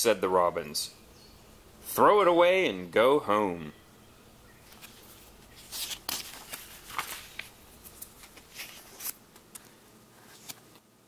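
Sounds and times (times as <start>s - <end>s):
book pages rustling and turning: 4.6s - 10.9s.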